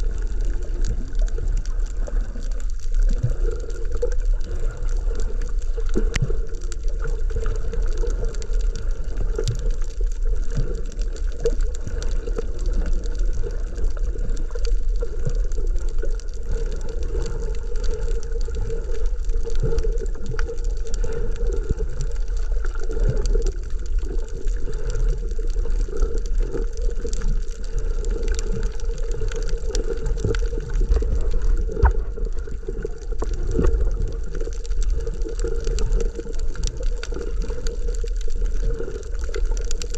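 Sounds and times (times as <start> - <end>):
faint crackling clicks: 0.0 - 39.9
muffled underwater rush: 0.0 - 39.9.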